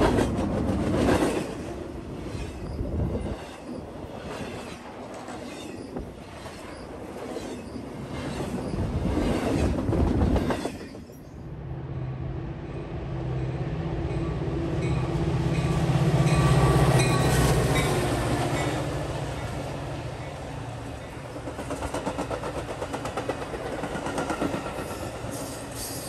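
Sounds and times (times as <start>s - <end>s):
diesel locomotive engine hum: 7.8s - 26.0s
train wheels clattering over rails: 21.1s - 26.0s.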